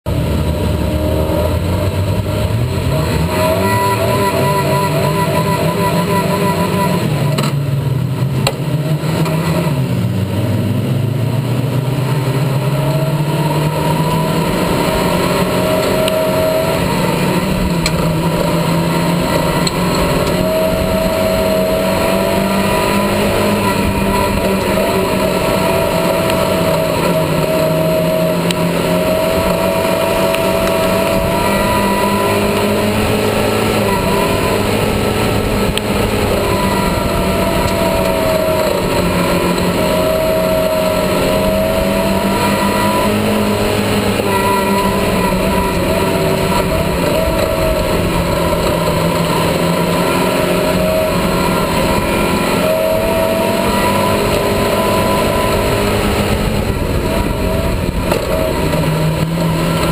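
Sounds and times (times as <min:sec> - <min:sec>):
racing car engine: 0:00.0 - 0:59.9.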